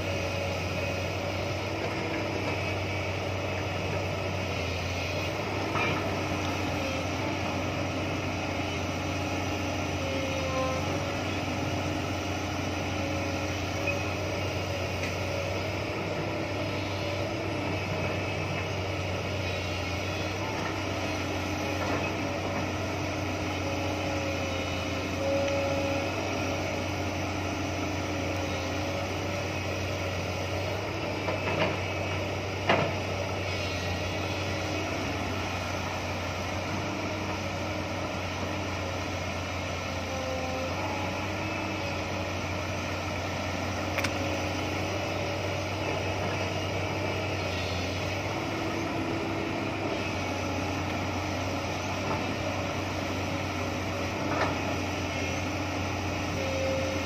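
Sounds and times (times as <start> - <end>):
excavator diesel engine running: 0.0 - 57.0
hydraulic whine: 0.0 - 57.0.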